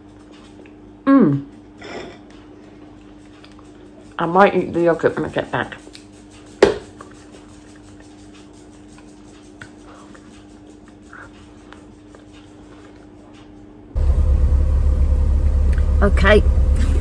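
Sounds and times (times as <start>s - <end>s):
steady low hum: 0.0s - 17.0s
car engine rumble: 14.0s - 17.0s
road noise: 14.0s - 17.0s.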